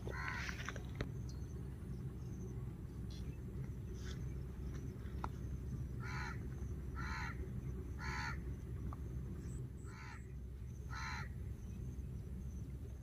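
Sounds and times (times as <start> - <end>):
steady low rumble: 0.0 - 13.0
crow cawing: 0.1 - 0.6, 6.0 - 6.4, 7.0 - 7.4, 8.0 - 8.4, 9.9 - 10.3, 10.9 - 11.3.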